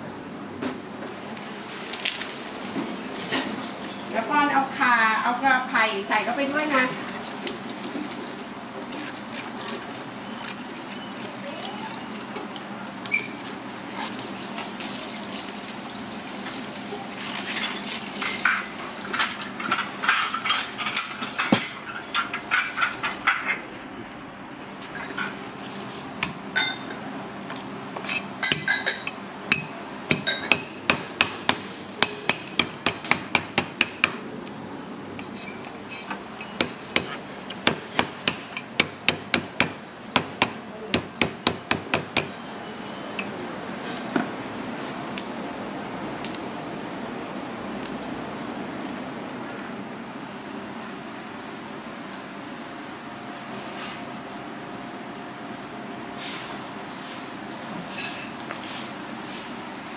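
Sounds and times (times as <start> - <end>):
cleaver chopping on wooden board: 29.5 - 34.2, 36.6 - 42.3.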